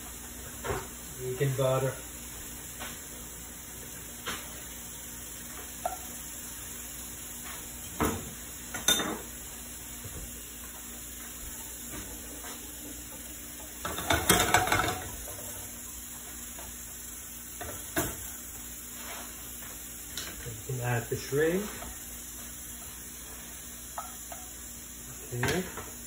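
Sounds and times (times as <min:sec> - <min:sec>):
butter sizzling in a frying pan: 0:00.0 - 0:26.0
cookware and utensils clinking: 0:07.9 - 0:09.3, 0:13.8 - 0:15.7, 0:25.2 - 0:26.0.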